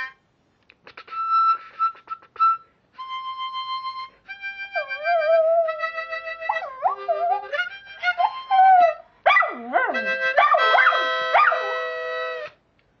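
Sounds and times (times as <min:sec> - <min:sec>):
harmonica chords: 0:01.0 - 0:12.6
dog howling: 0:04.8 - 0:12.0.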